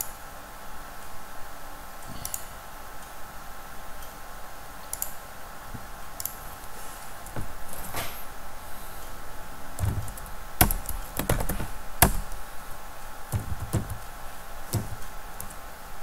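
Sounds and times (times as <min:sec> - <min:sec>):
faint steady hum: 0:00.0 - 0:16.0
computer mouse clicking: 0:04.9 - 0:05.2, 0:06.2 - 0:06.4
knock: 0:09.8 - 0:12.3, 0:13.4 - 0:14.0, 0:14.8 - 0:15.0.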